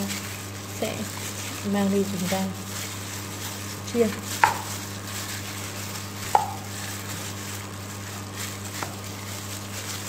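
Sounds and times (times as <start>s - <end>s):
plastic bag squeezing chicken: 0.0s - 10.0s
chicken knocking metal bowl: 4.4s - 4.7s, 6.3s - 6.6s.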